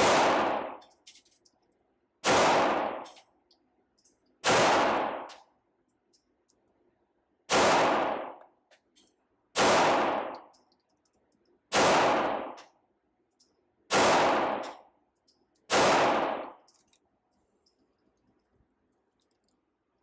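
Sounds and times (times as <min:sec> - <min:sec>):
pistol shots with ringing tail: 0:00.0 - 0:00.9, 0:02.2 - 0:03.2, 0:04.4 - 0:05.5, 0:07.5 - 0:08.4, 0:09.6 - 0:10.6, 0:11.7 - 0:12.8, 0:13.9 - 0:15.0, 0:15.6 - 0:16.7.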